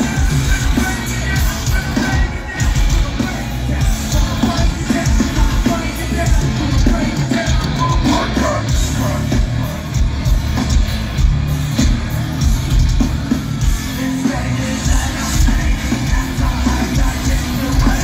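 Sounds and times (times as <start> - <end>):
person singing: 0.0 - 10.0, 13.8 - 18.0
live rock band playing: 0.0 - 18.0.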